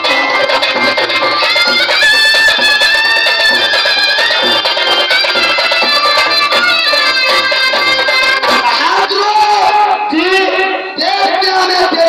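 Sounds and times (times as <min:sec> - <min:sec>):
quick drum rhythm: 0:00.0 - 0:10.0
high melody instrument: 0:00.0 - 0:11.2.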